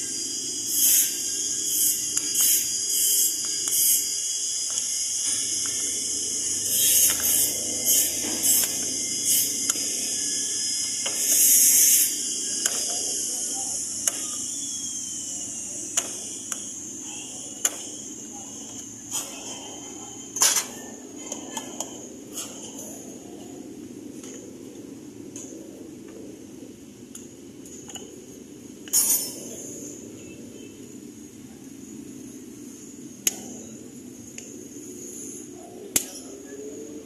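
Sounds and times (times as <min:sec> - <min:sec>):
air blow gun hissing: 0:00.0 - 0:19.6.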